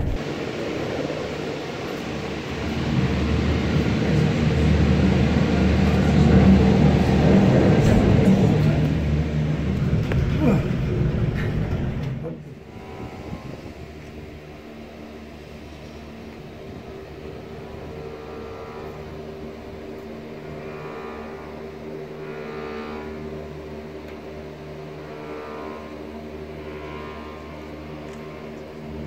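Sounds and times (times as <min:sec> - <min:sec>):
gondola cabin rumbling rattle: 0:00.0 - 0:22.6
steady hum with held tones: 0:00.0 - 0:29.0.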